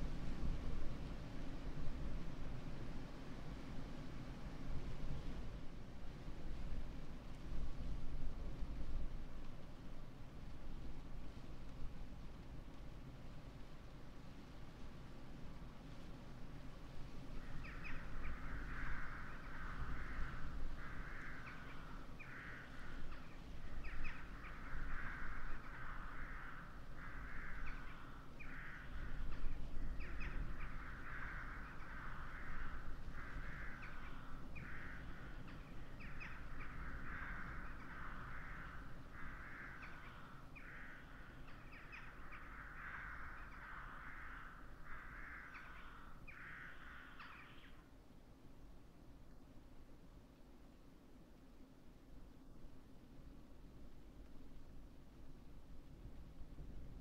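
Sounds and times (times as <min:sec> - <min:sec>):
wind rumble on microphone: 0:00.0 - 0:57.0
crows cawing: 0:17.4 - 0:47.8.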